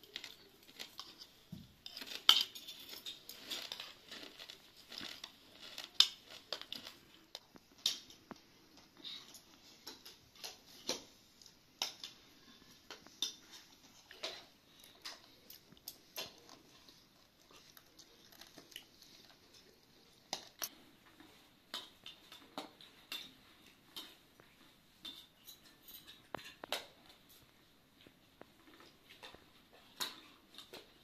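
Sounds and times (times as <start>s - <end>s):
cutlery clinking on plates: 0.0s - 5.1s, 25.0s - 27.4s.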